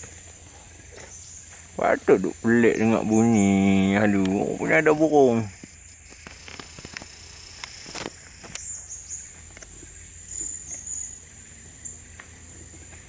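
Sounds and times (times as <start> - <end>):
high-pitched insect drone: 0.8 - 13.0
bird chirps and ticks: 2.6 - 13.0.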